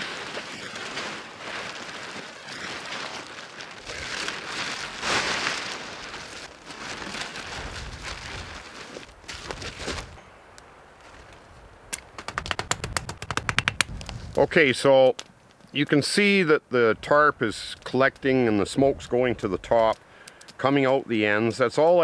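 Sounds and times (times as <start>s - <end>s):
plastic tarp rustling and crackling: 0.0s - 10.2s
wind buffeting microphone: 7.4s - 8.7s, 12.2s - 14.5s.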